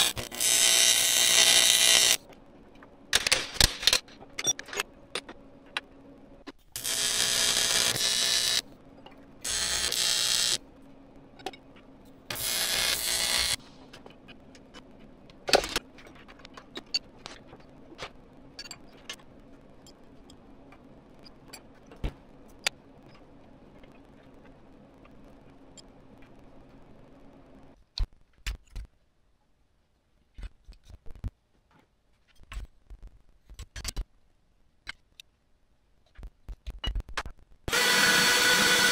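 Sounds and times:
arc welder welding: 0:00.0 - 0:02.2, 0:06.7 - 0:08.8, 0:09.4 - 0:10.6, 0:12.2 - 0:13.7, 0:37.7 - 0:38.9.

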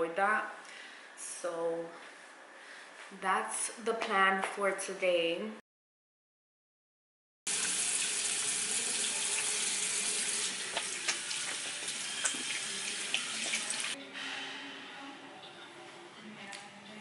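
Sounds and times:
water running from tap: 0:07.5 - 0:14.0.

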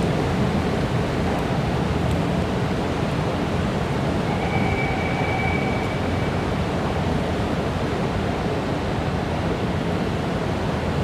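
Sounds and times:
underground platform ambience: 0:00.0 - 0:11.0
faint high whine: 0:04.0 - 0:07.3.

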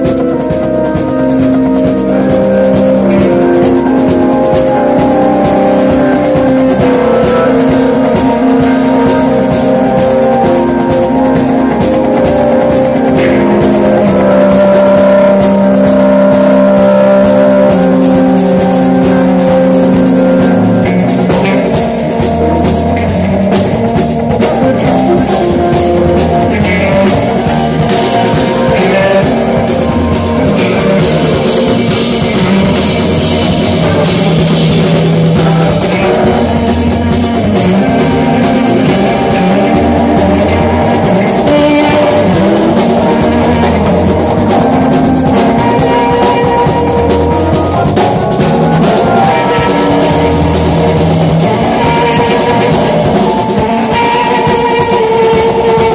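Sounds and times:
drum kit: 0:00.0 - 0:55.9
electric bass low notes: 0:00.0 - 0:55.9
guitar: 0:00.0 - 0:55.9
keyboards: 0:00.0 - 0:55.9.

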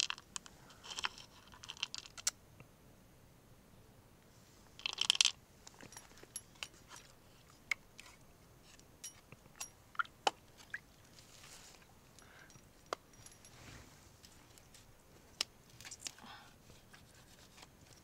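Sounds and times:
soft scraping rustles: 0:10.6 - 0:18.0.

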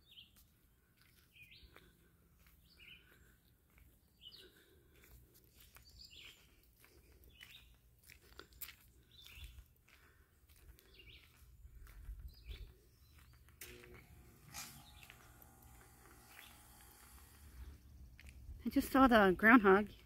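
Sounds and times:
footsteps on gravel: 0:00.0 - 0:20.0
bird chirping: 0:10.9 - 0:18.6.

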